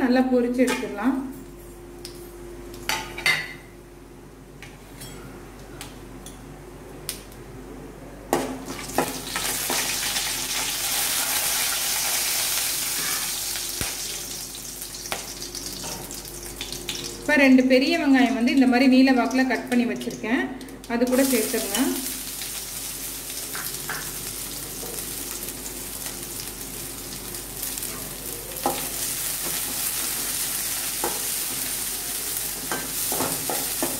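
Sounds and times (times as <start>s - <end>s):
spices frying in hot oil: 8.5s - 33.9s.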